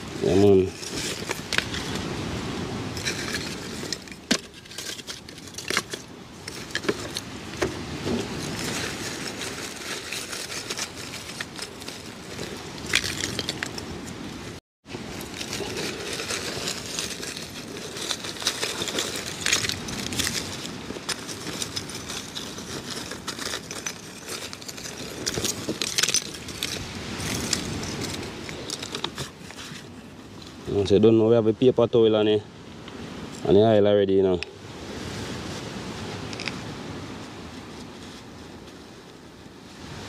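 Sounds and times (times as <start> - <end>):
plastic bag rustling: 2.9 - 30.1
charcoal lumps clinking: 15.0 - 29.2.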